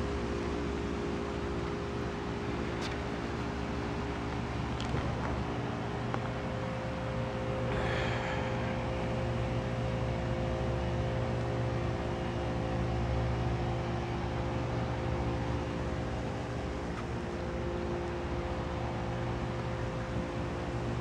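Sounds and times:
mechanical hum with low tones: 0.0 - 21.0.

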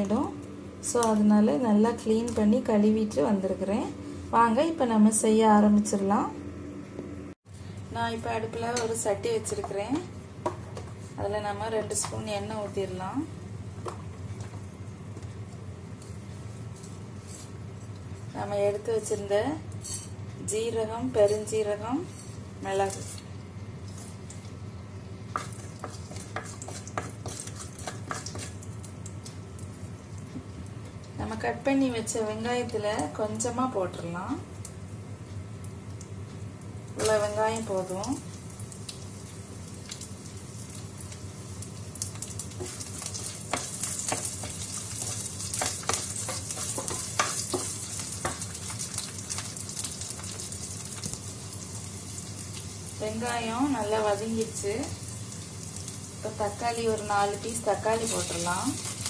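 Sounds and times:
spices sizzling in hot oil: 7.7 - 59.0
spatula scraping pot: 25.4 - 28.6
onions sizzling in oil: 35.5 - 59.0.

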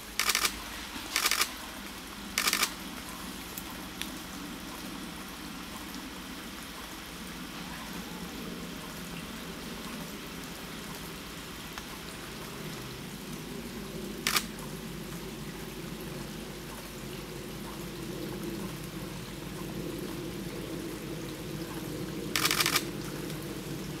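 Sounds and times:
water trickling over rocks: 0.0 - 24.0
camera shutter clicks: 0.2 - 1.5, 2.4 - 2.7, 14.3 - 14.5, 22.4 - 22.8.

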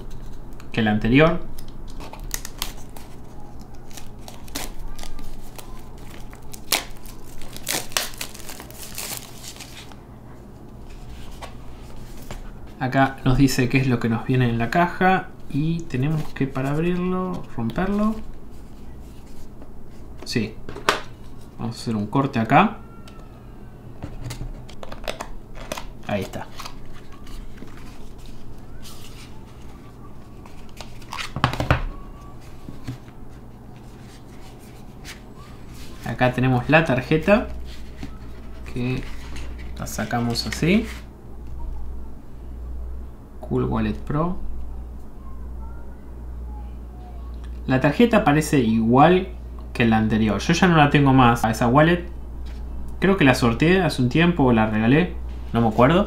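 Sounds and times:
plastic shrink film crinkling: 1.5 - 10.0.

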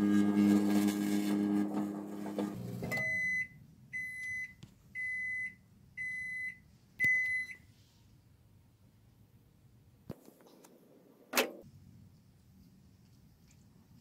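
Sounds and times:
microwave oven humming: 0.0 - 4.2
microwave beeps: 2.8 - 7.6.

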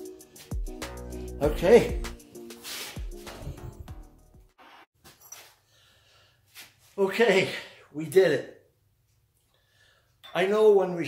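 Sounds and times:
faint background music: 1.3 - 2.2.

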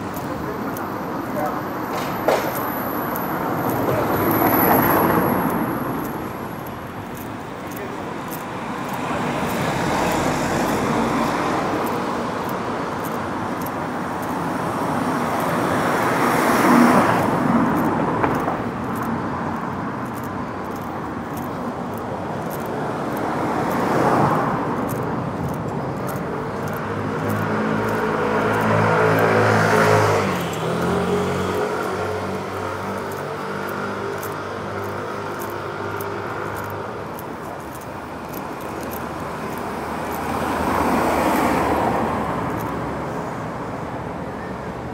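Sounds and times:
vehicle engine humming: 0.0 - 44.0
vehicles passing: 0.0 - 44.9.

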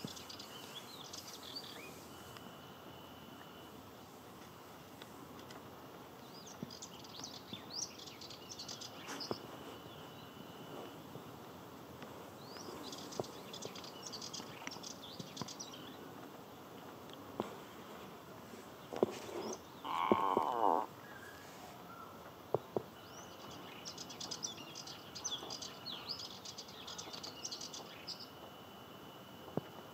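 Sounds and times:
warbler singing: 0.0 - 2.4, 6.2 - 10.9, 12.4 - 16.1, 18.7 - 28.4.

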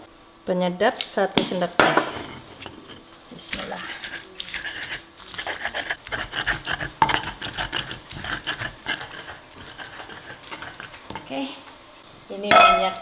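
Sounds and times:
stone pestle grinding in mortar: 2.1 - 11.3.

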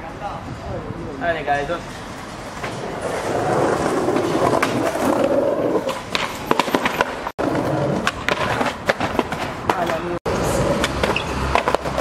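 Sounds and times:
skateboard wheels rolling on concrete: 0.0 - 12.0
skateboard clacking on ground: 2.6 - 12.0.

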